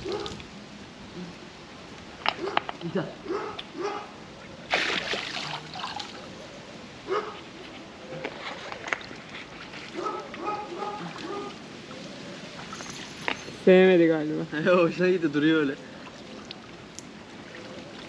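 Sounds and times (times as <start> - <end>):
pool water splashed by hand: 4.6 - 6.3, 15.9 - 18.0.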